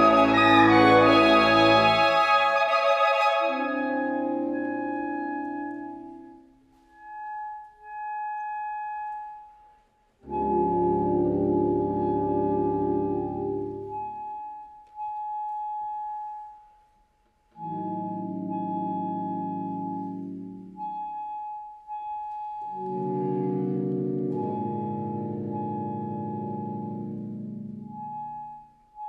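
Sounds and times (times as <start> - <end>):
saxophone ensemble playing chords: 0.0 - 4.8.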